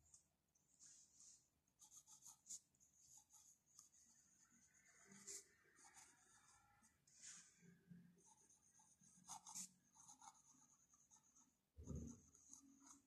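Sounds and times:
pen nib scratching on paper: 1.8s - 6.6s, 8.2s - 13.0s.

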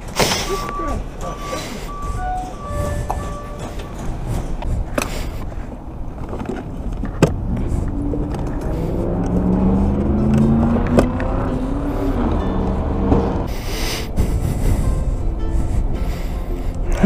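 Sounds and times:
low traffic rumble: 0.0s - 17.0s
car engine rising in pitch: 0.3s - 4.4s, 7.3s - 13.8s.

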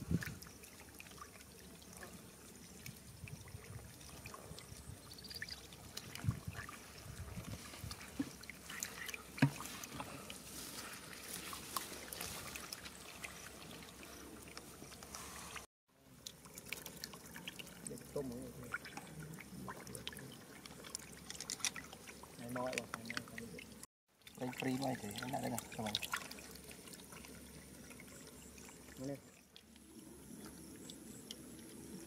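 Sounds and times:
fish splashing in puddle: 5.4s - 15.7s, 24.2s - 28.8s.

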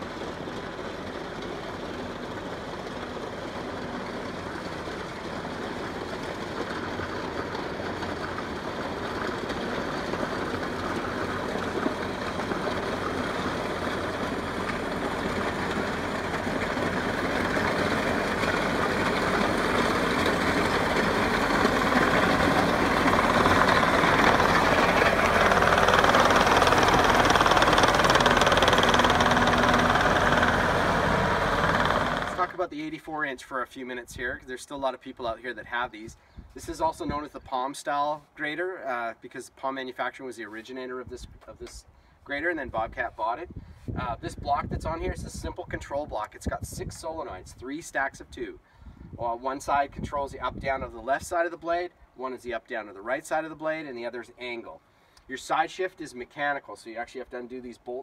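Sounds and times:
track loader engine: 0.0s - 32.7s
track rattle on gravel: 0.0s - 32.7s.

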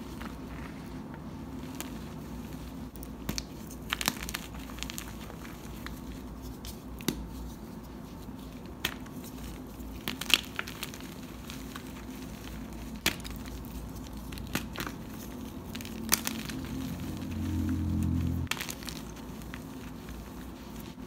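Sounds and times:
low hum: 15.5s - 18.6s.

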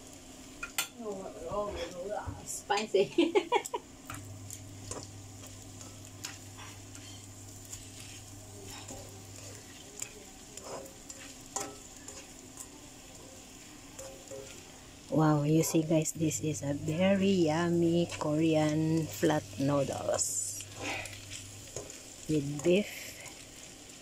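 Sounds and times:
faint sizzle: 0.0s - 24.0s
utensil scraping in wok: 4.7s - 24.0s
utensil clacking against pan: 8.7s - 16.0s, 18.0s - 23.4s.

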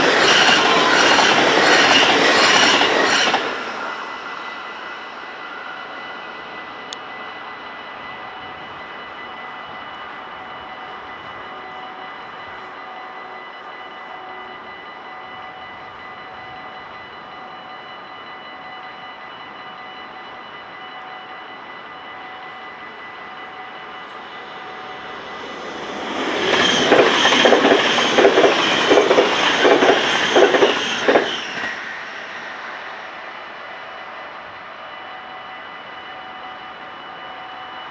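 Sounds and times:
train wheels clacking on rails: 0.0s - 4.6s, 24.1s - 32.8s.

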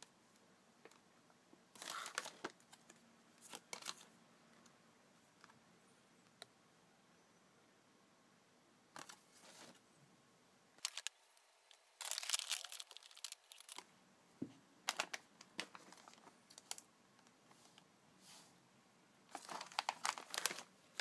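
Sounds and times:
foil bag crinkling: 1.8s - 2.9s, 10.8s - 11.2s, 12.0s - 13.8s, 14.9s - 16.8s, 19.3s - 21.0s.

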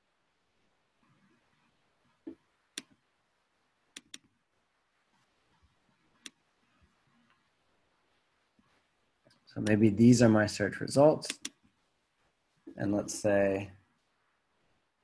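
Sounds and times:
computer mouse clicks: 2.2s - 3.0s, 3.9s - 4.4s, 5.2s - 6.4s, 11.2s - 11.7s.

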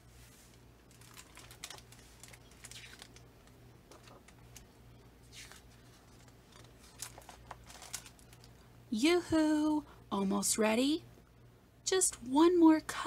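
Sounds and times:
low steady hum: 0.0s - 13.0s
pages turning: 0.2s - 8.5s.

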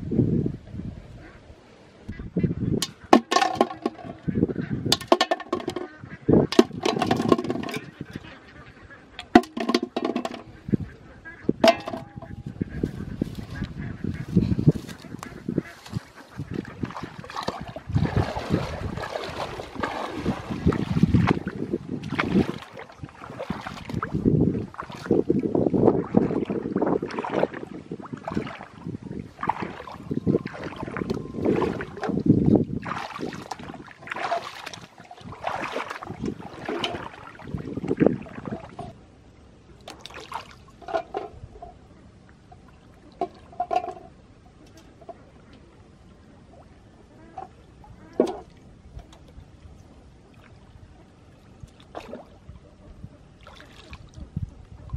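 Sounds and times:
footsteps splashing in water: 11.7s - 25.4s, 26.0s - 38.8s, 39.9s - 40.8s, 53.4s - 54.2s.

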